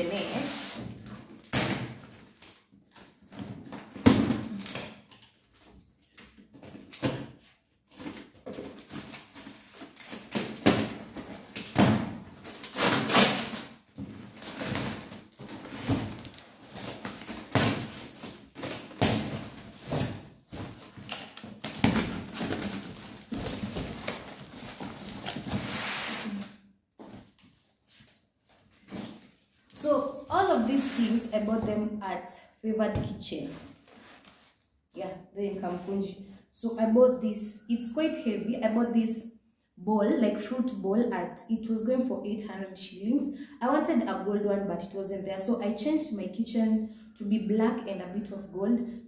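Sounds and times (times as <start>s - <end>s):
paper rustling and crackling: 12.3s - 26.4s.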